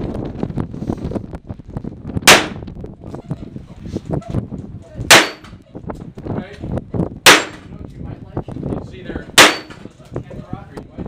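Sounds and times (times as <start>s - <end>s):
revolver gunshots: 2.3s - 2.6s, 5.1s - 5.5s, 7.3s - 7.7s, 9.4s - 9.8s.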